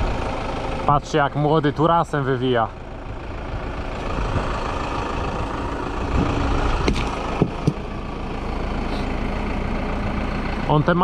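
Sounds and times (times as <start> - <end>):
tractor engine running: 0.0 - 11.0
sharp knocks: 6.8 - 7.8.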